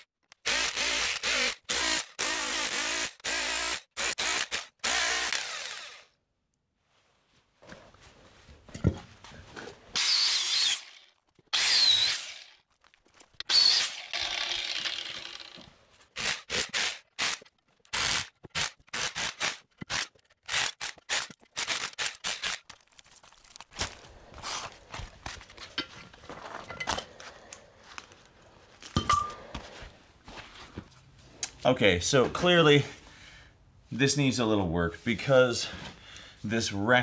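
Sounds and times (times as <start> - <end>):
power tool bursts: 0.4 - 6.1, 10.0 - 12.6, 13.4 - 22.6.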